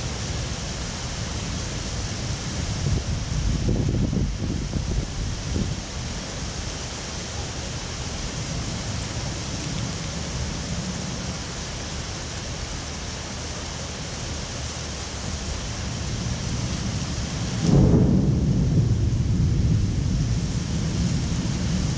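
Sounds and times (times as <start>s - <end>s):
heavy rain hissing: 0.0s - 21.9s
thunder rumbling: 1.2s - 6.8s, 15.7s - 21.9s.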